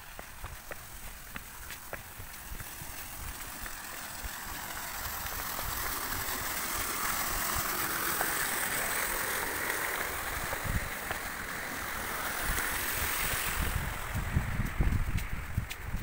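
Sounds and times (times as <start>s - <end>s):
footsteps on concrete steps: 0.0s - 6.4s, 10.4s - 11.8s, 13.6s - 16.0s
wind buffeting microphone: 0.0s - 16.0s.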